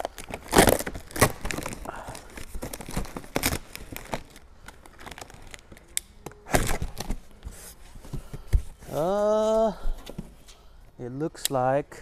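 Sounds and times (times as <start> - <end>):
cardboard packaging crinkling: 0.0 - 5.8.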